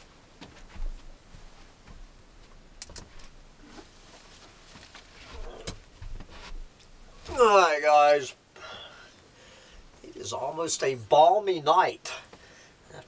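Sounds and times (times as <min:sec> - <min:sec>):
rustling: 0:00.0 - 0:07.6.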